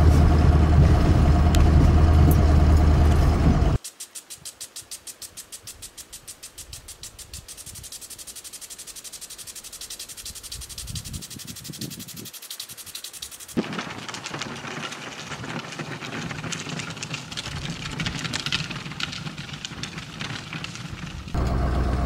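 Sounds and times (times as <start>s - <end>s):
outdoor ambience hiss: 1.3s - 17.9s
faint ticks: 3.8s - 13.6s
insects chirping: 3.8s - 13.6s.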